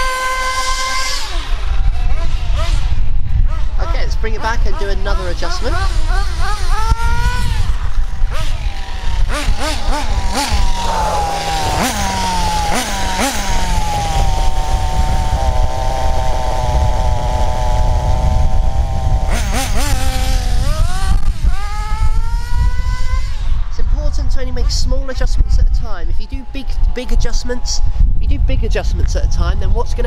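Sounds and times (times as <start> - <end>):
nitro engine idling: 0.0 - 23.8
nitro engine revving: 0.0 - 30.0.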